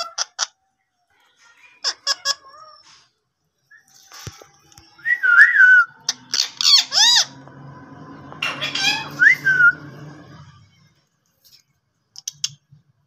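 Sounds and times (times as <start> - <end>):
parrot whistling and calling: 8.4 - 10.0.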